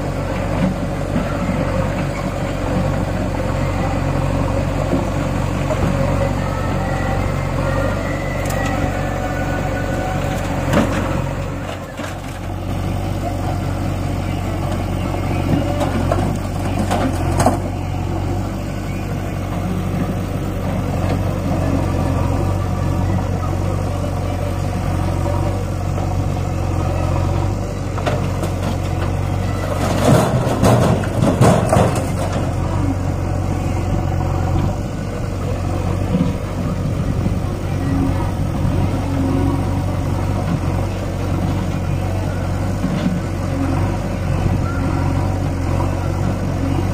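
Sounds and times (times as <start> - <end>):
heavy diesel engine running: 0.0 - 46.9
loud knocks and rattles: 29.8 - 32.6.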